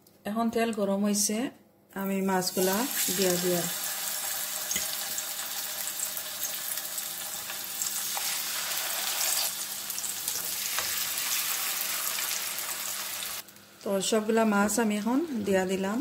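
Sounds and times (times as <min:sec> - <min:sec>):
fish sizzling in hot oil: 0:02.6 - 0:13.5.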